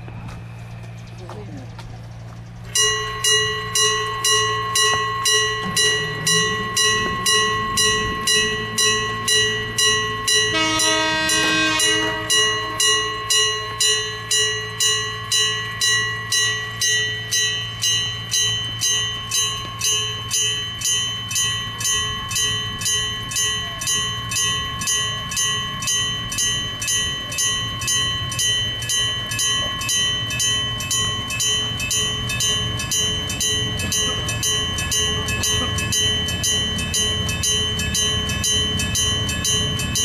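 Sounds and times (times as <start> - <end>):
railway crossing gong alarm: 0.0 - 40.0
train horn: 10.3 - 13.4.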